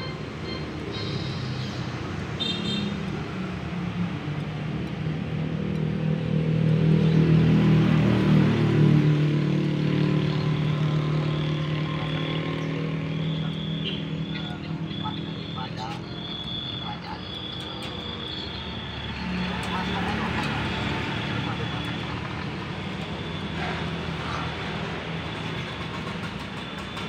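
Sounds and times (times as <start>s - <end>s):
motorbikes passing: 0.0s - 27.0s
vehicle engine running: 8.8s - 27.0s.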